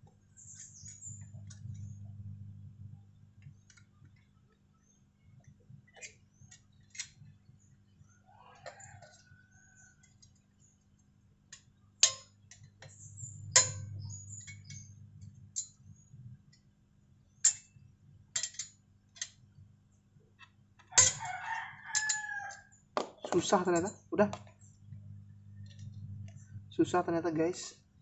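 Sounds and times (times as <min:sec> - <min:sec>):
metallic clicks of pliers and spring: 0:11.5 - 0:14.9, 0:17.4 - 0:17.7, 0:18.4 - 0:19.4, 0:22.0 - 0:22.6
rooster crowing: 0:20.9 - 0:22.7.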